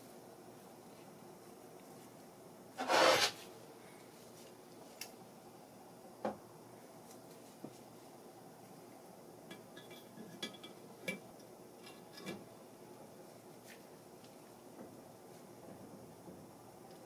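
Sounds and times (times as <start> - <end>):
metal tool scraping: 2.8 - 3.4.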